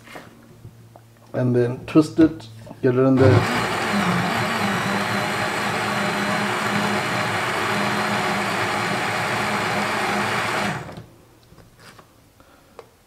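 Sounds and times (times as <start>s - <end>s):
blender running: 3.2s - 11.1s.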